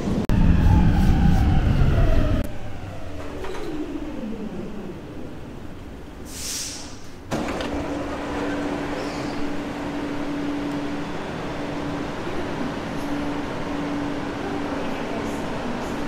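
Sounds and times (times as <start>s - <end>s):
train rumble and motor whine: 0.0s - 16.0s
hiss of air: 6.2s - 7.2s.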